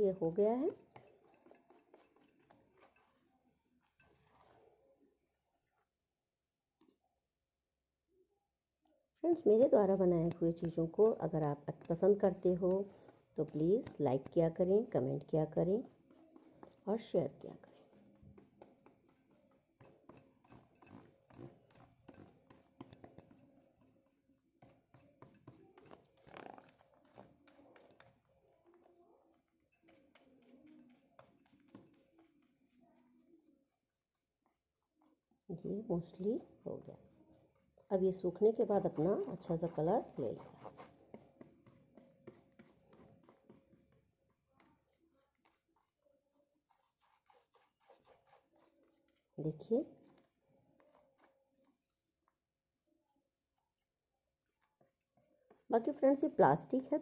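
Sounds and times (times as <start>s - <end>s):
faint small clicks and rustles: 0.0s - 6.0s, 15.8s - 35.5s, 38.8s - 55.7s
paintbrush tapping plastic container: 9.3s - 24.0s.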